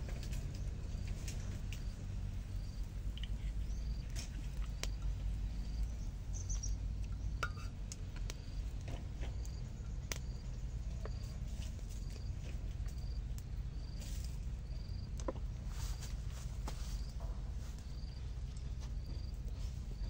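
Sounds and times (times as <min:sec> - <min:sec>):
low rumble: 0:00.0 - 0:20.0
wood fire crackling: 0:00.0 - 0:20.0
bird chirps: 0:05.8 - 0:07.4.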